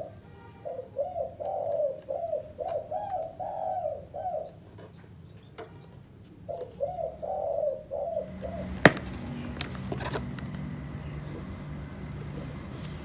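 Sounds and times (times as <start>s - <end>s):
dove cooing: 0.0s - 4.9s, 6.4s - 13.0s
faint low hum: 5.2s - 13.0s.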